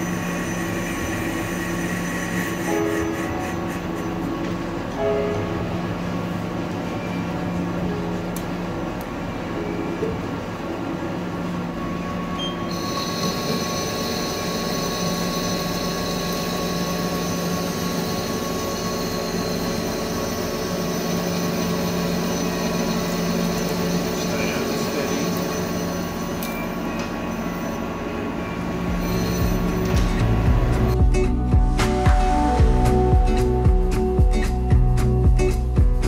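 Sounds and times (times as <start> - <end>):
lathe drive hum: 0.0 - 31.0.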